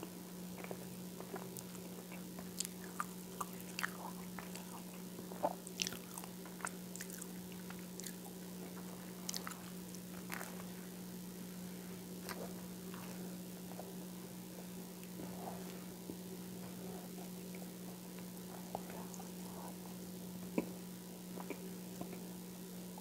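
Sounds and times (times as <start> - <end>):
steady low hum: 0.0 - 23.0
chewing toast: 0.5 - 10.8, 20.5 - 22.3.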